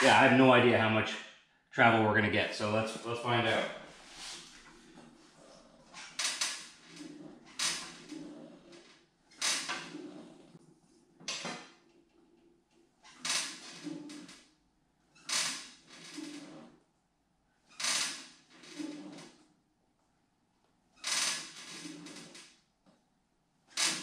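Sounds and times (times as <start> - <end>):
suspension creaking: 2.9 - 10.6, 11.2 - 14.5, 15.2 - 16.8, 17.7 - 19.4, 21.0 - 22.6.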